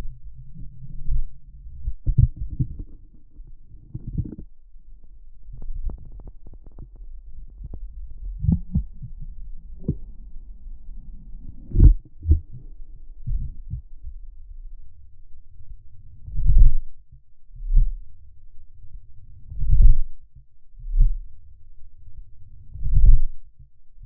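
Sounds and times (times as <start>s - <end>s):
muffled underwater water rumble: 0.0s - 23.7s
underwater knocks and thumps: 1.8s - 4.5s, 5.5s - 10.4s, 11.0s - 13.9s.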